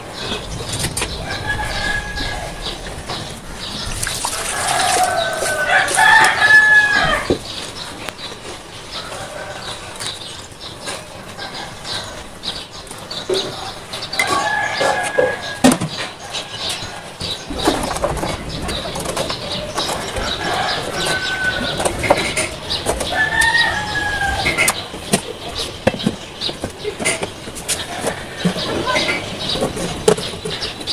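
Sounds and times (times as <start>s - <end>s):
knocks and clatter: 0.0s - 6.4s, 17.2s - 23.7s
chickens calling: 0.0s - 30.9s.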